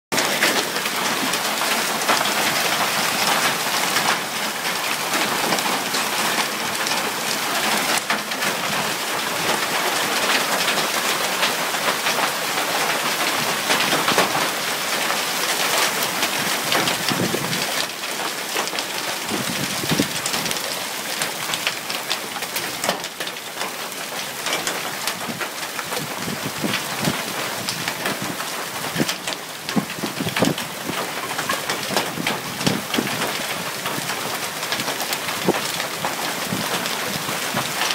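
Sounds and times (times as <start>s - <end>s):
hail falling hard: 0.1s - 37.9s.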